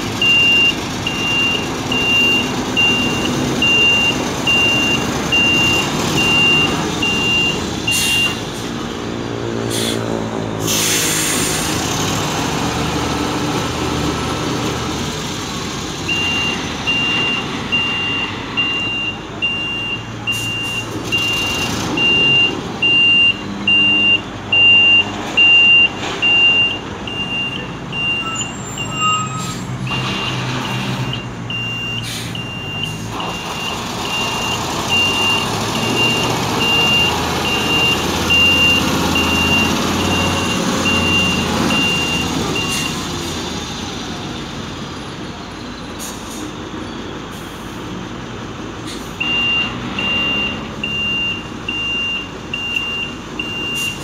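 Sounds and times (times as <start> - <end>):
diesel engine running: 0.0 - 54.0
reversing alarm beeping: 0.2 - 8.4, 16.1 - 43.0, 49.2 - 54.0.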